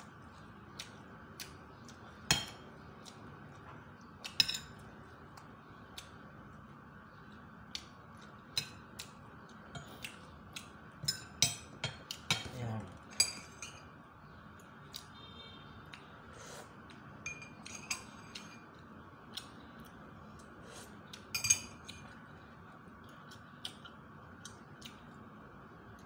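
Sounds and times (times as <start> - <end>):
faint steady hum: 0.0 - 26.0
cutlery clinking on a plate: 21.3 - 22.0.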